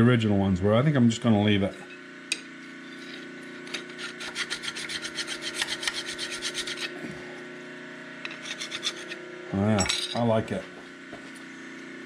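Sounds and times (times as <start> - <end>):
faint shop hum: 0.0 - 12.0
hand file rasping on steel: 3.9 - 7.0, 8.3 - 9.2.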